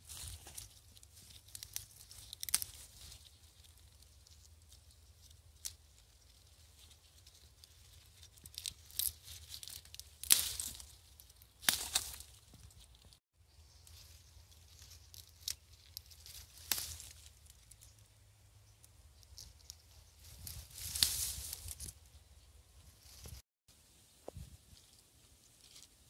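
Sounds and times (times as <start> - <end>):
rustling leaves: 0.0 - 26.0
calyces snapped off stems: 0.1 - 13.2, 14.5 - 17.9, 18.8 - 22.0.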